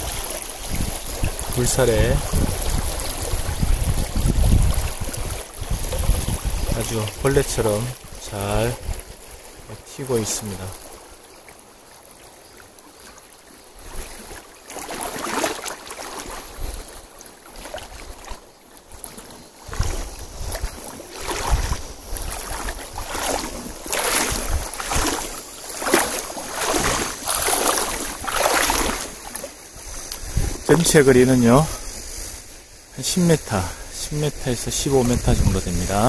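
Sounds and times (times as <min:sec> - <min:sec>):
wind buffeting microphone: 0:00.0 - 0:09.3, 0:19.6 - 0:32.5, 0:33.4 - 0:36.0
creek water running over stones: 0:00.0 - 0:36.0.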